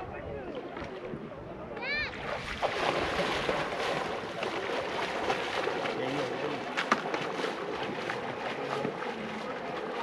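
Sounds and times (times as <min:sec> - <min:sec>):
river water rushing: 0:02.1 - 0:10.0.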